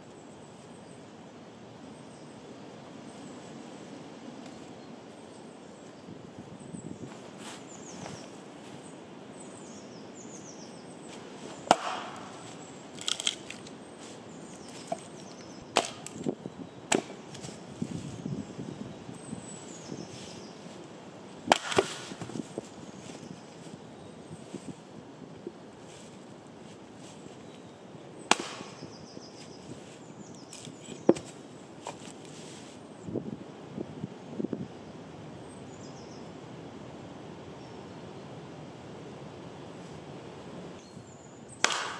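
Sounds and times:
faint steady hiss: 0.0s - 41.9s
sharp cracks: 11.6s - 13.8s, 15.7s - 16.3s, 21.5s - 22.3s, 28.3s - 28.9s, 41.6s - 41.9s
campfire crackling and popping: 21.5s - 22.0s.

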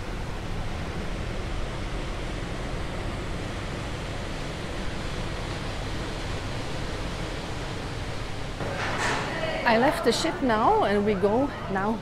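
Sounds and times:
water and wind rushing: 0.0s - 12.0s.

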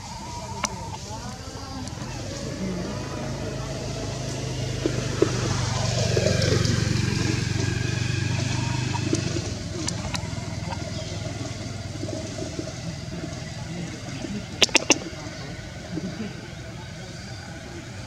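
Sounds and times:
motor engine humming: 0.0s - 18.0s.

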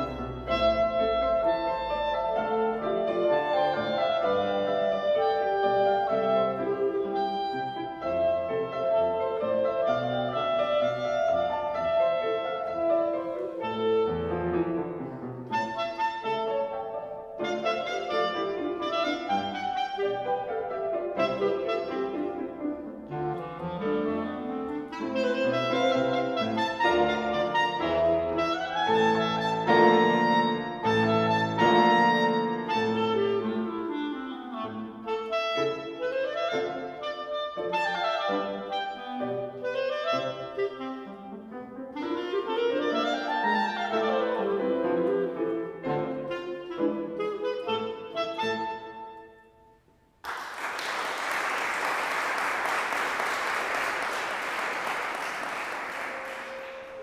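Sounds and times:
clarinet playing: 0.0s - 49.8s, 50.8s - 57.0s
piano accompaniment: 0.0s - 57.0s
audience applause: 50.2s - 57.0s.

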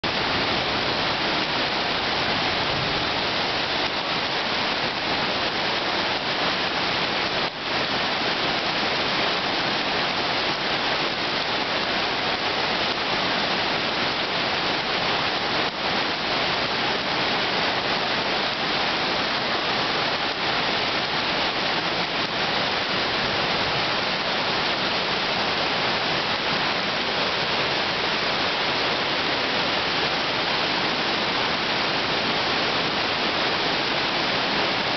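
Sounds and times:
floodwater rushing down steps: 0.0s - 34.9s
torrential rain: 0.0s - 34.9s.

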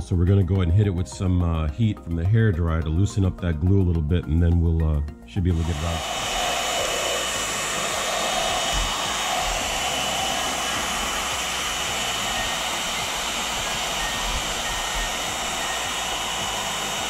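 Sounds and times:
hair dryer running: 5.5s - 17.0s.

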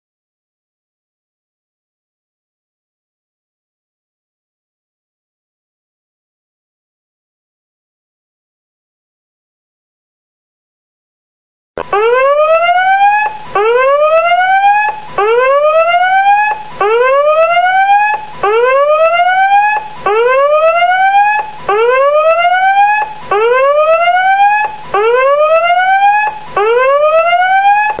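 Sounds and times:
electronic whooping alarm: 11.8s - 28.0s.

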